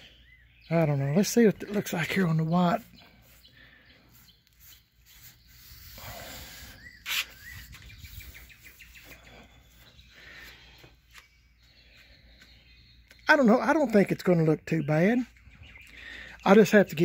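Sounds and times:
bird chirping and trilling: 0:00.0 - 0:17.0
wet paper towel rubbing metal: 0:04.5 - 0:08.8.

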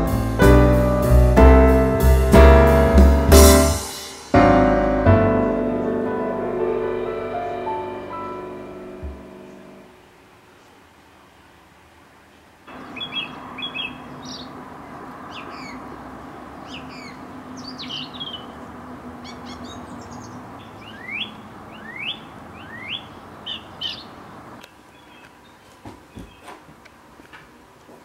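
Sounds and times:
small birds chirping: 0:12.4 - 0:26.7.

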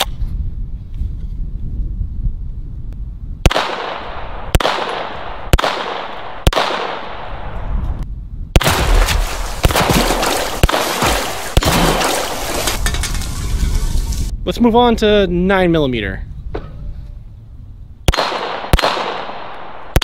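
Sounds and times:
gunshots with echo: 0:03.4 - 0:07.4, 0:08.6 - 0:12.6, 0:18.1 - 0:20.0
dense rumble: 0:07.4 - 0:18.1.

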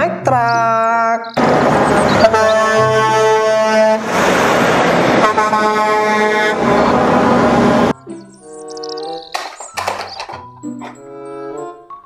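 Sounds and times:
truck engine and road noise: 0:00.0 - 0:11.9
truck air horn blasts: 0:01.4 - 0:04.3, 0:05.1 - 0:07.9.

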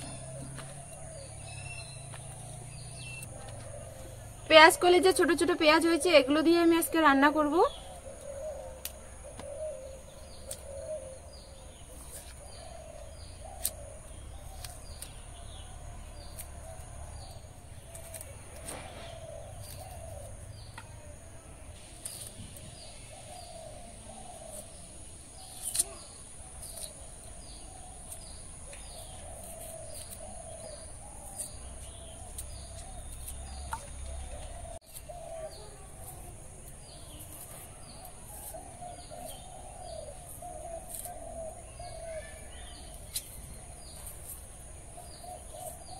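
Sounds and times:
high falling bird chirp: 0:00.0 - 0:20.8
birds chirping and warbling: 0:00.0 - 0:45.9
blade cutting onions clicks: 0:13.6 - 0:13.8.

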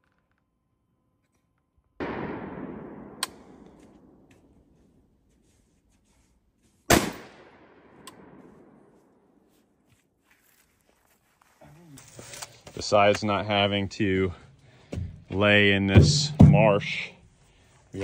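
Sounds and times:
rifle shots echoing: 0:02.0 - 0:04.7, 0:06.9 - 0:09.0.

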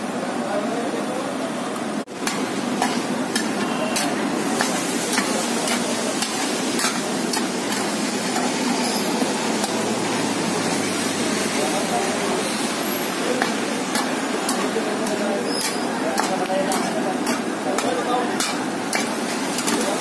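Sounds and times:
omelette sizzling in pan: 0:02.1 - 0:20.0
metal spatula scraping pan: 0:12.5 - 0:20.0.

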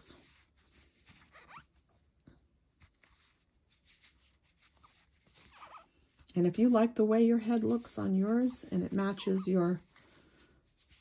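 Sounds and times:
yarn rubbing on crochet hook: 0:07.5 - 0:11.0.

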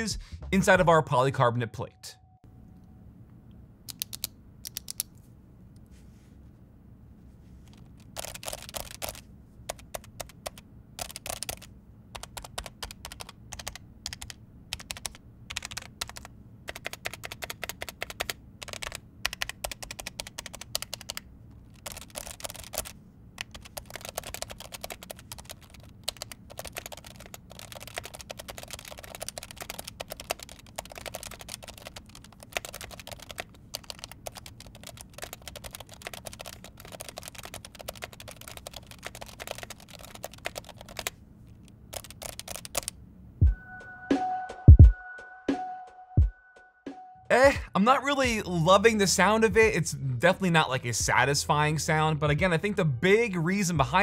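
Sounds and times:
keyboard typing clacks: 0:08.0 - 0:41.1, 0:41.9 - 0:42.9.

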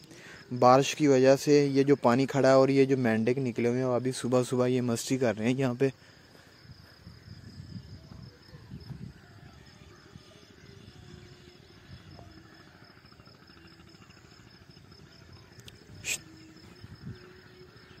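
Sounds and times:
insect trill: 0:00.0 - 0:18.0.

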